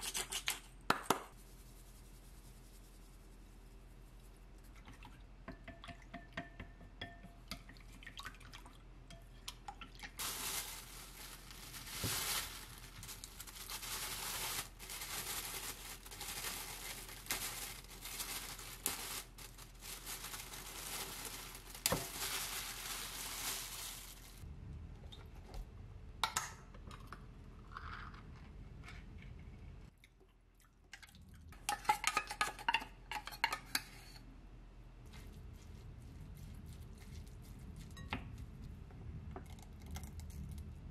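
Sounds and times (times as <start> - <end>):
plastic bag crinkling: 10.2 - 24.4.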